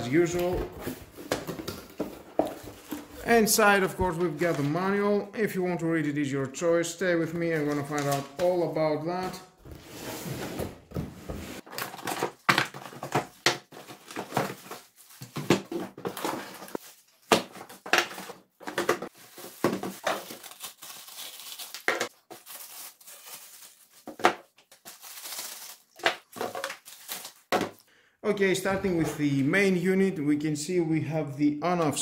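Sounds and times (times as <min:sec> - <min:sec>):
plastic bags crinkling and rustling: 0:11.6 - 0:27.8.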